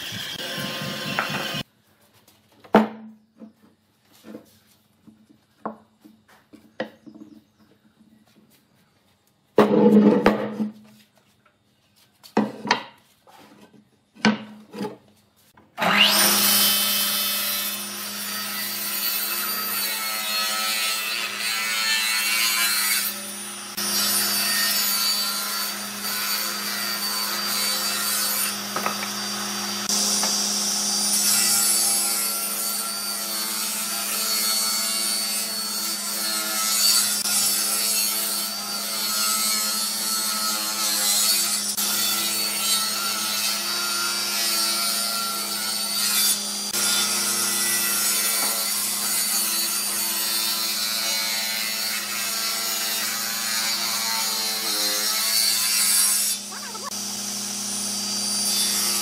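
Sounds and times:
table saw motor hum: 0:00.0 - 0:01.6, 0:15.8 - 0:20.0, 0:23.0 - 0:33.6, 0:54.6 - 0:59.0.

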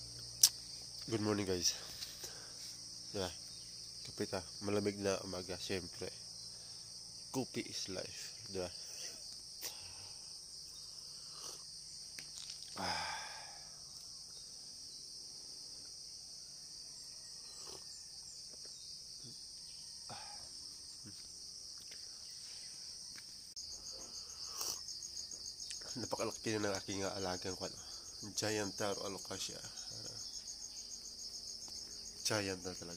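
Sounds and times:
high-pitched insect chorus trilling: 0:00.0 - 0:32.9
faster pulsing insect trill: 0:23.6 - 0:32.9.

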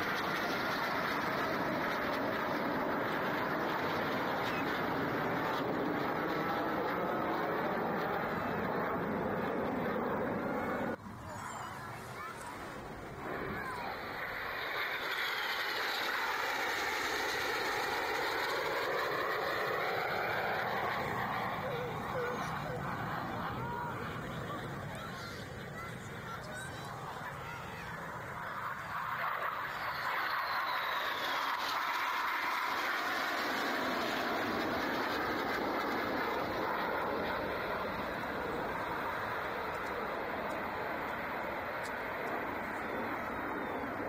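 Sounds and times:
jets flying past: 0:00.0 - 0:44.0.

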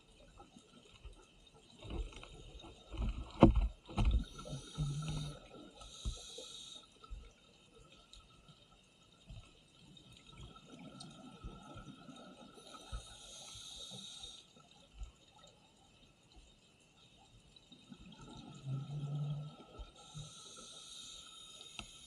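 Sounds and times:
air hissing through regulator: 0:04.3 - 0:06.9, 0:12.8 - 0:14.5, 0:20.1 - 0:22.0.

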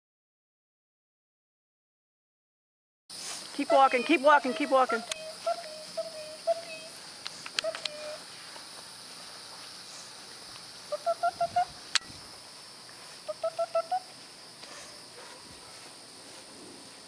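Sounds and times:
high insect buzz: 0:03.1 - 0:17.0
short hooting notes: 0:03.6 - 0:07.0.

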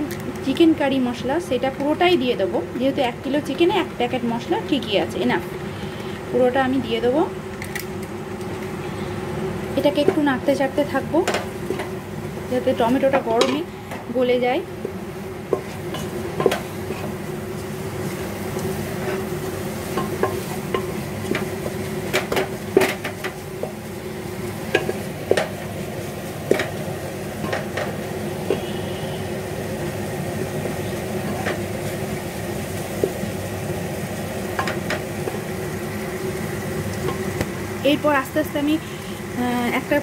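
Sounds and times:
food sizzling: 0:00.0 - 0:40.0
wooden spatula scraping pot: 0:14.8 - 0:23.8.

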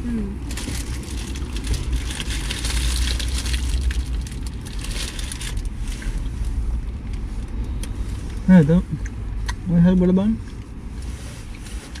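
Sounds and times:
steady low hum: 0:00.0 - 0:12.0
paper wrappers crinkling: 0:00.5 - 0:05.7.

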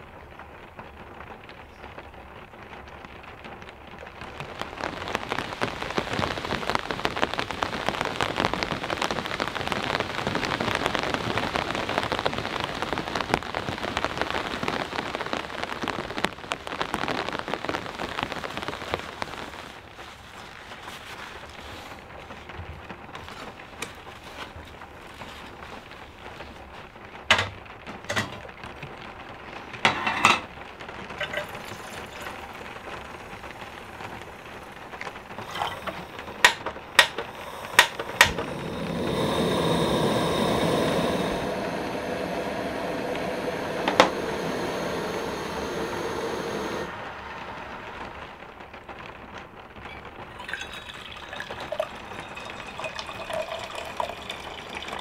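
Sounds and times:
steady rushing hiss: 0:04.2 - 0:50.3
water splashing into metal kettle: 0:31.2 - 0:32.7, 0:35.4 - 0:39.2, 0:50.3 - 0:55.0.

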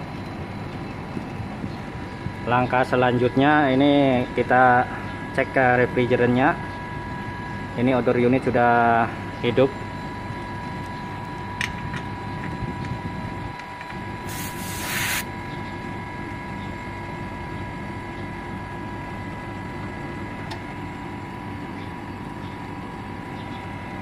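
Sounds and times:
air conditioner unit humming: 0:00.0 - 0:24.0
steady whine: 0:00.0 - 0:24.0
short hiss of escaping gas: 0:14.3 - 0:15.3.

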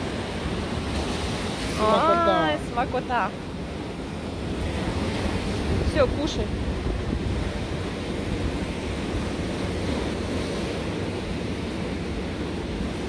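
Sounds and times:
stormy sea surf: 0:00.0 - 0:13.0
wind buffeting microphone: 0:04.1 - 0:13.0.

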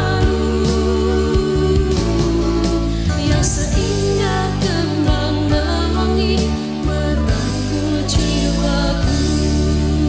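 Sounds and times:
instrumental backing: 0:00.0 - 0:10.0
person singing: 0:00.0 - 0:10.0.

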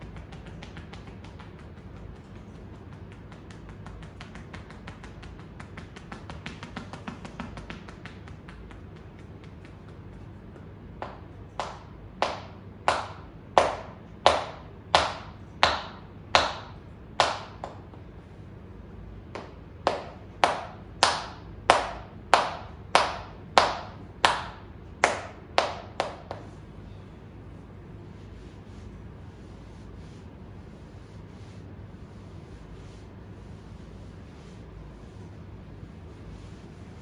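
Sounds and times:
hands slapping shoulders: 0:00.0 - 0:18.0, 0:19.3 - 0:26.6.

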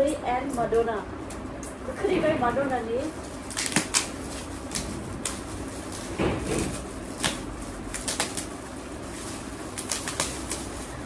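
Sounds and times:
gift wrap crinkling and tearing: 0:03.3 - 0:11.0.

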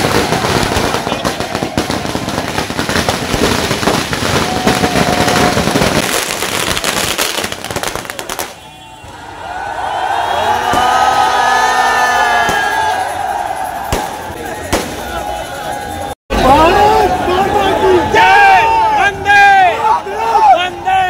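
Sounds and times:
firecrackers crackling: 0:00.0 - 0:09.2, 0:12.3 - 0:16.1
voices: 0:12.2 - 0:21.0.

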